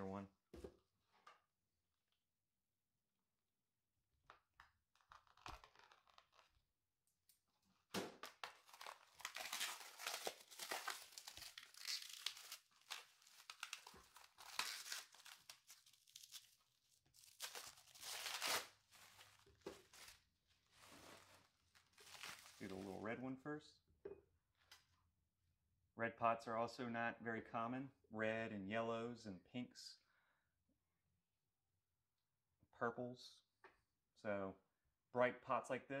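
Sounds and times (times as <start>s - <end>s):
plastic wrap crinkling and tearing: 5.0s - 6.6s, 8.2s - 23.0s.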